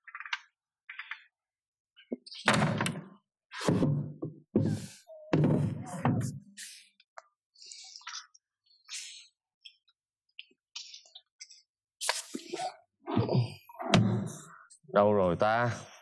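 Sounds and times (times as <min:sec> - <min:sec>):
wooden wardrobe doors banging: 0:02.5 - 0:03.1.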